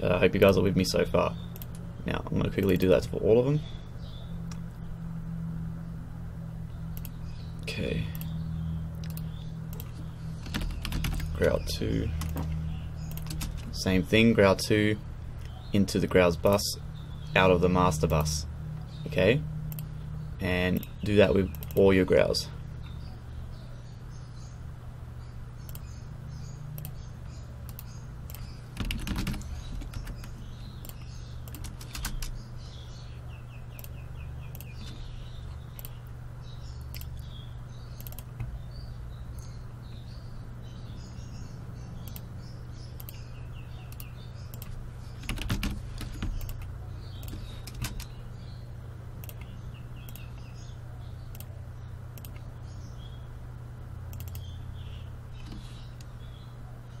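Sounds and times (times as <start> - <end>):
low electrical hum: 0.0 - 57.0
mouse clicks: 9.0 - 10.0, 20.7 - 21.8, 26.8 - 28.6, 36.8 - 37.4, 38.0 - 38.5, 42.0 - 42.3, 43.0 - 43.2, 43.8 - 44.8, 46.0 - 48.1, 49.2 - 50.5, 51.3 - 51.5, 52.1 - 52.5, 54.1 - 54.5
computer keyboard typing: 9.0 - 11.6, 12.2 - 13.8, 27.6 - 32.4, 43.9 - 48.2.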